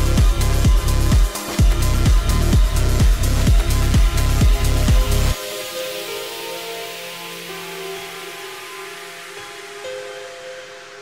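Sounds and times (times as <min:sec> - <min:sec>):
heavy kick drum: 0:00.0 - 0:05.4
electronic dance music: 0:00.0 - 0:09.8.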